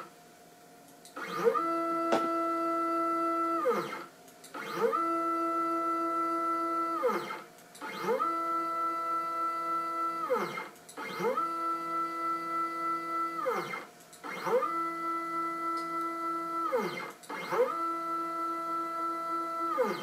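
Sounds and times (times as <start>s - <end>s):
stepper motors whining: 10.1s - 11.7s, 13.2s - 20.0s.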